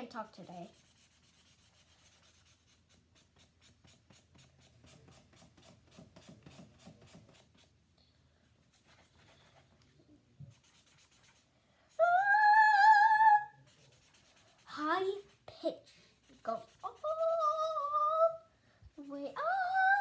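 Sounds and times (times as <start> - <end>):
marker rubbing on paper: 0.2 - 7.8, 8.7 - 9.7, 10.5 - 11.5, 13.6 - 17.5
child singing rising ah: 12.0 - 13.6, 16.9 - 18.5, 19.1 - 20.0.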